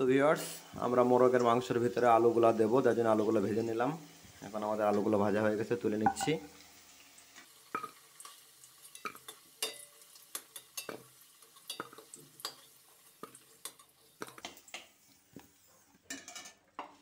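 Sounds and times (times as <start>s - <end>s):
oil sizzling: 0.0s - 16.1s
metal spatula scraping and clinking: 9.0s - 11.0s.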